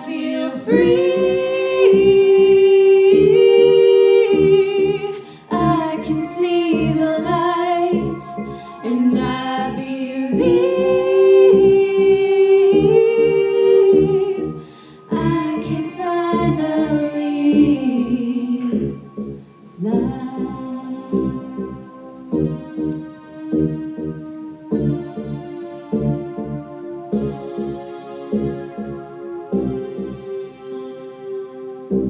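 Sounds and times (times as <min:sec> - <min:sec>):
women singing a cappella: 0:00.0 - 0:19.1, 0:19.7 - 0:21.9
rhythmic low pulse: 0:00.0 - 0:32.0.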